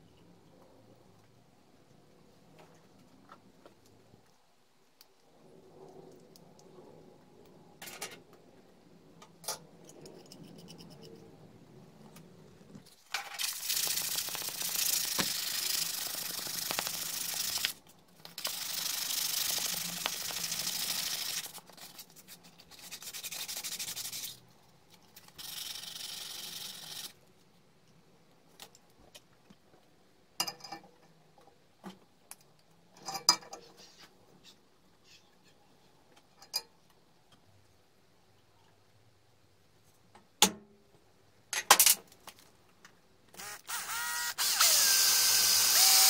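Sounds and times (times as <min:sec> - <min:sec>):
sandpaper rasping on steel tube: 0:18.6 - 0:24.4.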